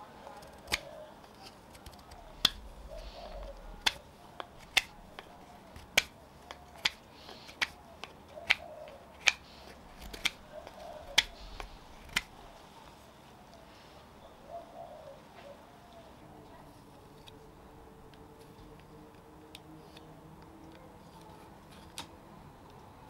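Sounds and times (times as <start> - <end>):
crisp snap of shavings: 0.3 - 13.6
knife cutting wood shavings: 0.4 - 12.5.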